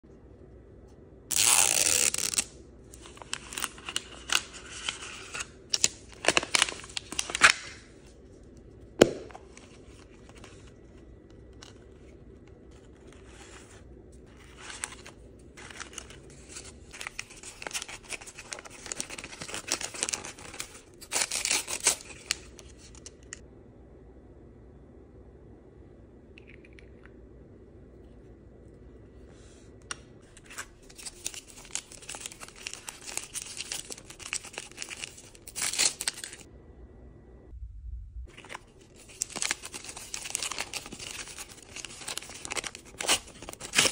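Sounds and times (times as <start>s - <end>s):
plastic wrap tearing: 1.3s - 2.5s, 3.2s - 7.9s, 14.5s - 22.7s, 30.8s - 36.5s, 38.3s - 43.9s
wrappers rustling and crinkling: 30.8s - 36.5s, 38.3s - 43.9s.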